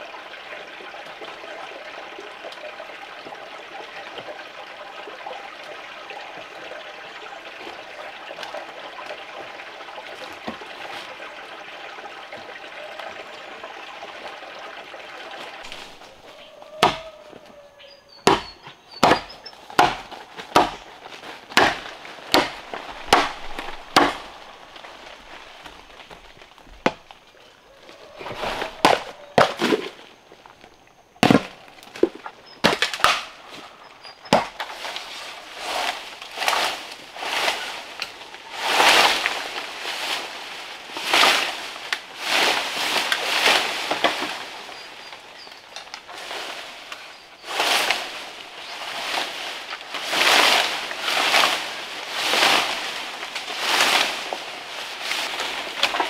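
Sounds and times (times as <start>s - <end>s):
sharp knocks on wood: 16.8s - 17.0s, 18.3s - 20.8s.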